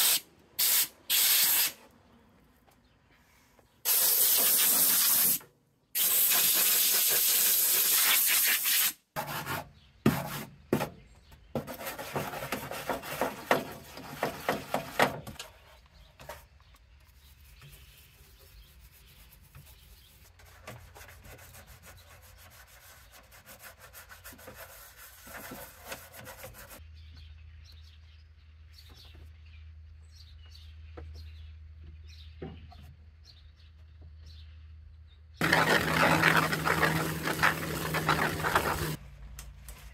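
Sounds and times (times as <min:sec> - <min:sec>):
spray gun hissing: 0:00.0 - 0:01.8, 0:03.9 - 0:05.4
brush scrubbing: 0:17.1 - 0:26.8, 0:35.4 - 0:39.0
rag wiping: 0:35.4 - 0:39.0.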